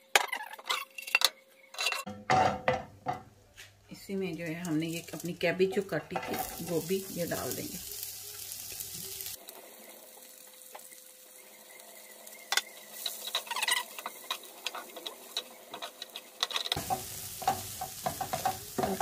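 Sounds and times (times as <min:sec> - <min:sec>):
cabbage sizzling in a frying pan: 0:04.1 - 0:19.0
wooden spoon clacking on pan: 0:12.6 - 0:19.0.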